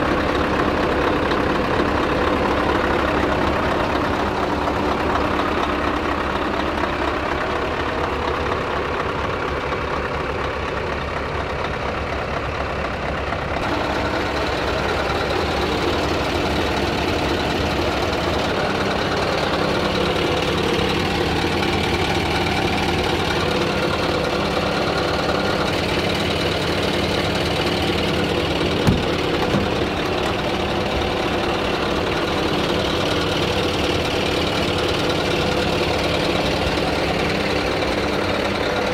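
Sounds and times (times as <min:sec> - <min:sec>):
truck diesel engine idling: 0:00.0 - 0:38.9
sharp knock: 0:28.8 - 0:29.8.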